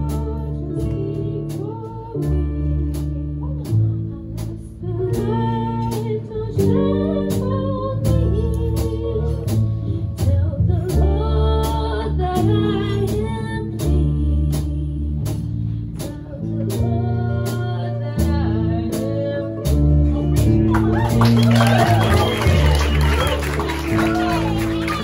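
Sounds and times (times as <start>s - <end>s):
drum kit beat: 0.0s - 25.0s
upright bass: 0.0s - 25.0s
electric guitar: 15.8s - 25.0s.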